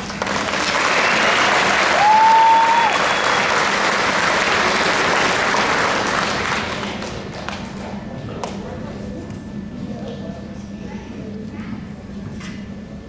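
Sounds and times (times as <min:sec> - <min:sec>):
audience applauding: 0:00.0 - 0:07.8
whistle: 0:02.2 - 0:03.6.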